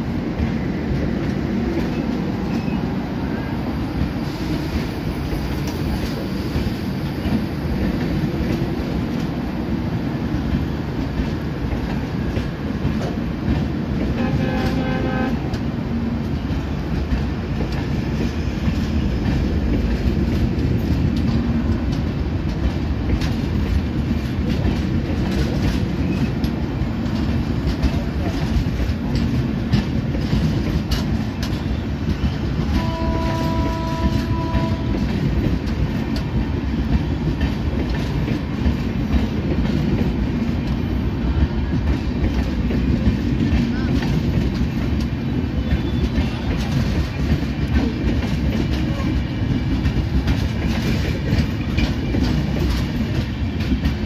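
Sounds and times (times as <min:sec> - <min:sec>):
train coaches rumbling past: 0:00.0 - 0:54.0
wheels clicking over rail joints: 0:10.4 - 0:54.0
train horn: 0:14.1 - 0:15.6, 0:32.6 - 0:35.2.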